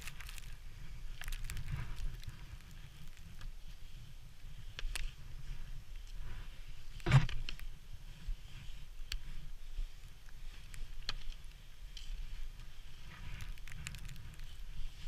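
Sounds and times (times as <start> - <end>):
gear clicking and scraping on rock: 0.0 - 3.5, 10.4 - 15.0
wind rumbling on microphone: 0.0 - 15.0.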